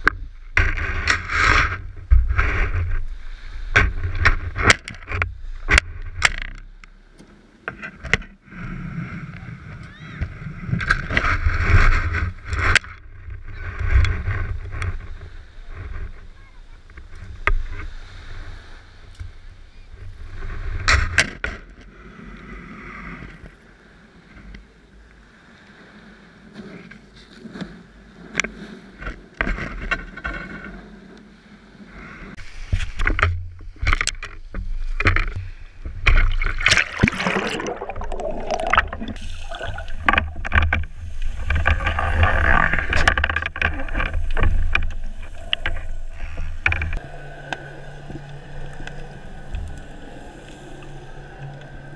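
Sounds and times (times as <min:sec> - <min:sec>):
wind: 0:00.0 - 0:51.9
water sloshing and splashing: 0:32.4 - 0:51.9.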